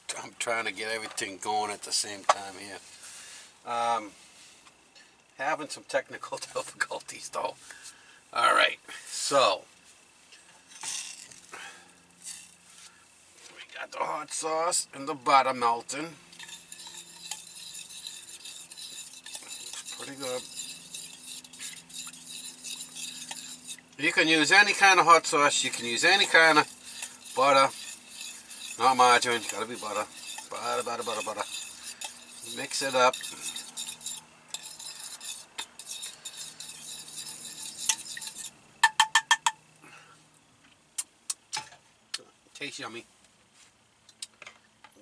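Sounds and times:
utensil scraping a pan: 15.9 - 39.4
spoon stirring in metal pot: 16.3 - 39.6
metal spoon tapping pot rim: 16.4 - 23.8, 25.5 - 39.6.

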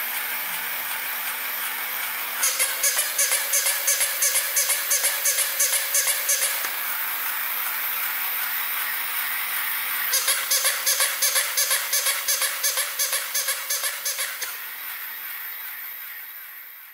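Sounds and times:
toy gear motor whirring: 0.4 - 16.9
electronic giggle: 10.1 - 14.5.

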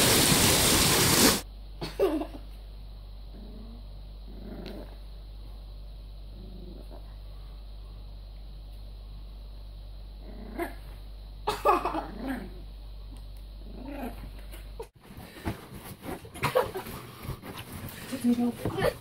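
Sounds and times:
steady low hum: 1.4 - 19.0
bedding rustling: 15.0 - 19.0.

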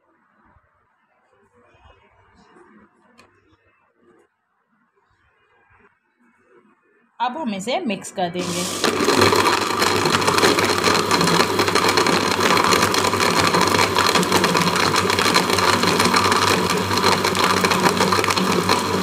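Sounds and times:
blender motor running: 8.4 - 19.0.

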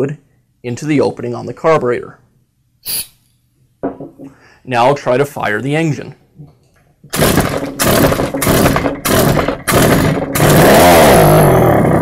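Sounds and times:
recoil starter cord pulls: 7.1 - 11.2
string trimmer engine running: 7.2 - 12.0.

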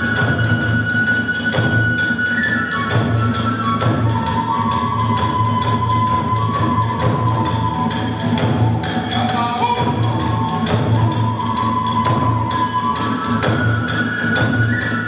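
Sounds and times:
bamboo flute shrill notes: 0.0 - 15.0
small hand cymbals: 0.0 - 15.0
taiko drums beat: 0.0 - 15.0.

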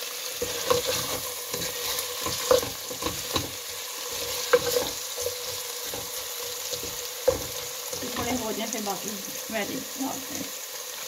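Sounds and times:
potatoes sizzling in oil: 0.0 - 11.0
spatula knocking and scraping pan: 0.4 - 8.6.

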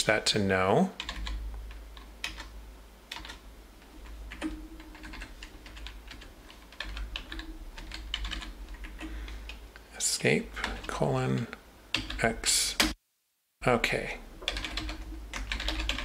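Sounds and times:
steady low hum: 0.0 - 16.0
keyboard typing: 1.0 - 9.6, 10.5 - 13.0, 14.4 - 16.0.

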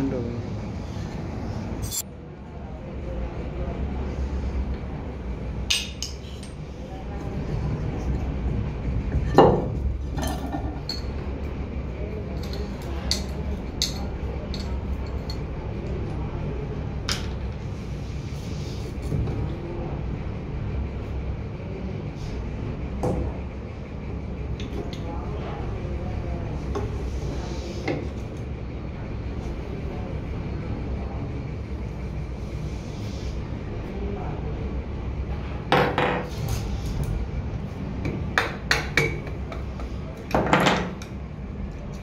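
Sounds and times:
steady low hum: 0.0 - 42.0
metal parts clinking: 1.8 - 2.0.

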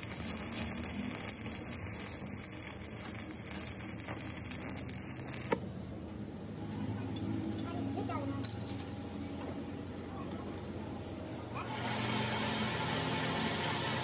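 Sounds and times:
welding arc crackling and hissing: 0.0 - 5.9.

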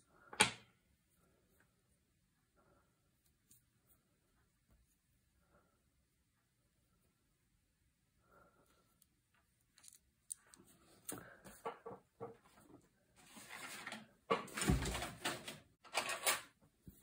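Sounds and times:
metal parts clicking and rubbing: 9.7 - 10.6.

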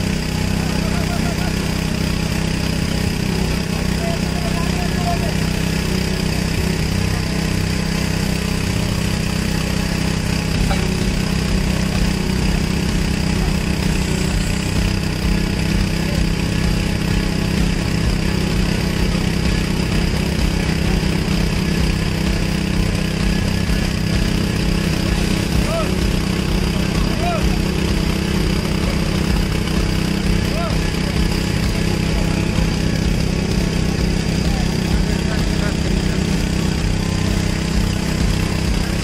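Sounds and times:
engine idling: 0.0 - 39.0.

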